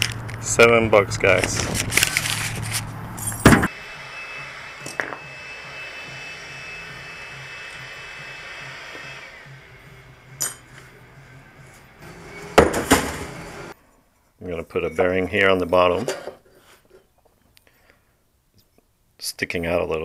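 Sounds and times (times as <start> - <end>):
handling noise: 0.0 - 3.7.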